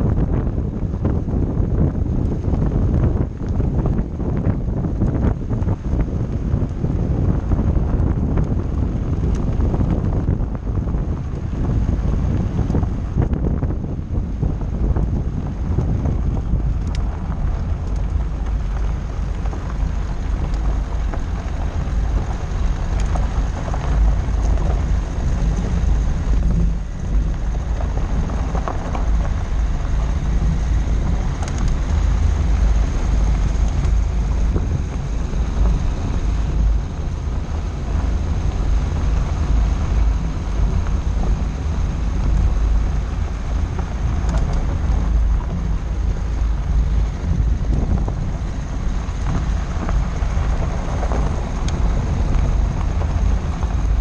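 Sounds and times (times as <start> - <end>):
low car rumble: 0.0 - 54.0
wind buffeting microphone: 0.0 - 54.0
tyres crackling over stones: 14.0 - 54.0.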